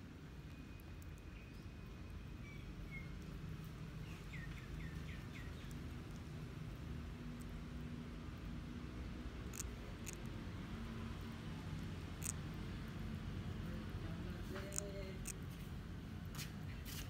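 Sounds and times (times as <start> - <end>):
low outdoor rumble: 0.0 - 16.9
bird chirps: 0.5 - 3.2, 4.0 - 5.8.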